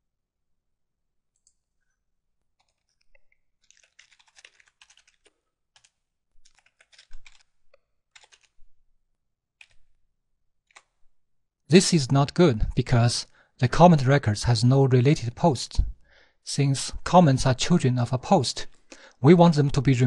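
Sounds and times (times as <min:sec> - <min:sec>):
computer keyboard typing: 0:02.6 - 0:07.5, 0:08.1 - 0:08.6, 0:09.6 - 0:09.9, 0:10.7 - 0:11.0.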